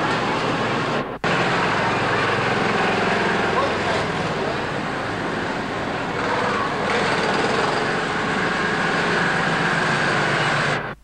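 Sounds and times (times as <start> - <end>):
faint distant voices: 0.0 - 6.9.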